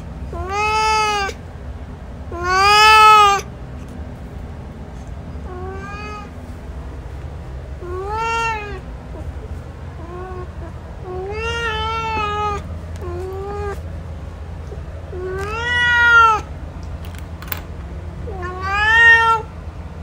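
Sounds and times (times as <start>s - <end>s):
steady low hum: 0.0s - 20.0s
cat meowing: 0.3s - 1.4s, 2.3s - 3.5s, 5.4s - 6.4s, 7.8s - 9.3s, 10.0s - 13.9s, 15.1s - 16.5s, 18.2s - 19.5s.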